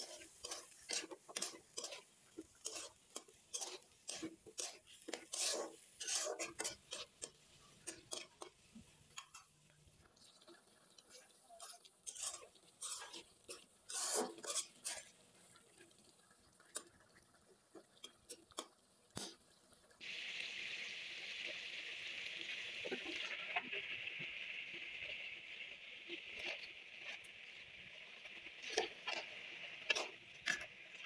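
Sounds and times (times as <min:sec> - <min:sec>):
spatula scraping metal pan: 0:00.0 - 0:09.5, 0:11.1 - 0:15.1, 0:28.6 - 0:30.7
food sizzling in pan: 0:00.0 - 0:17.0, 0:17.6 - 0:31.0.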